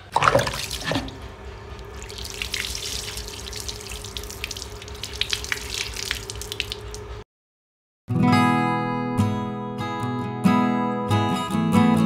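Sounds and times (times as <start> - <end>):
running water splashing: 0.0 - 7.2
drips onto concrete floor: 1.8 - 7.2.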